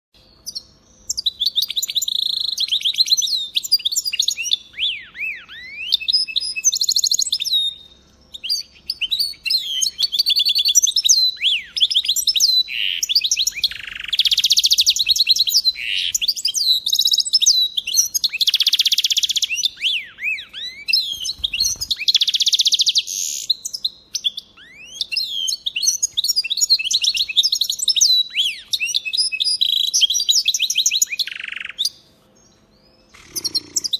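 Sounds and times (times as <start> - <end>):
finch singing twittering song: 0.2 - 33.9
buzzy bird trills: 8.4 - 23.5, 33.0 - 33.9.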